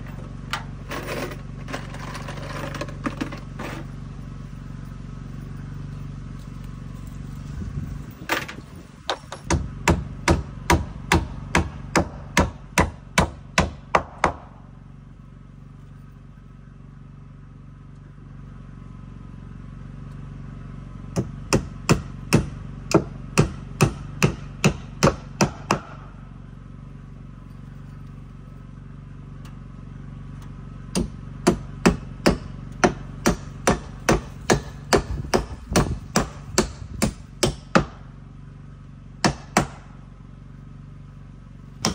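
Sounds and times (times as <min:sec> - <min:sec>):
hammer driving nails into wood: 0:21.2 - 0:26.0, 0:31.0 - 0:38.0, 0:39.2 - 0:39.8.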